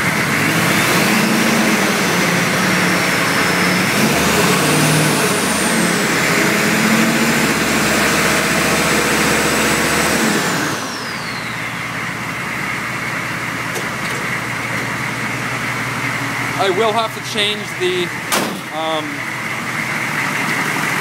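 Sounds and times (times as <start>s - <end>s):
diesel engine revving and idling: 0.0s - 21.0s
high turbo whistle: 7.9s - 12.4s.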